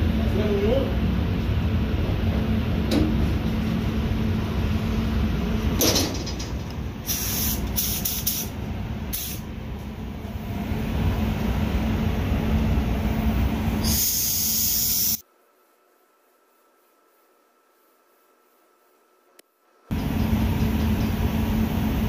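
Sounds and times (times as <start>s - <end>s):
air handling rumble and hum: 0.0s - 15.2s, 19.9s - 22.0s
spray gun hissing: 7.1s - 8.5s, 9.2s - 9.4s, 13.8s - 15.2s.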